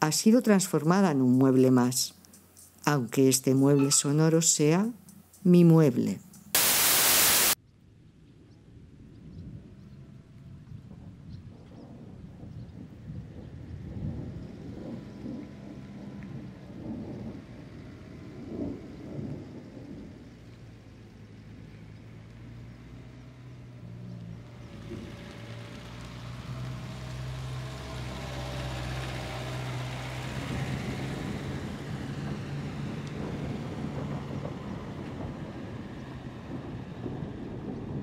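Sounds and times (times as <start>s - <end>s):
rumbling noise: 9.2s - 22.9s, 29.8s - 38.0s.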